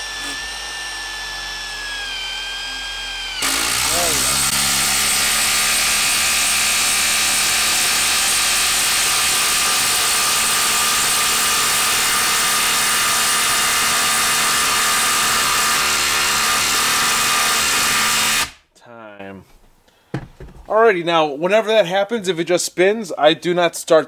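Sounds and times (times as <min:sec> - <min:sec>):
impact driver hammering screw: 0:00.0 - 0:18.6.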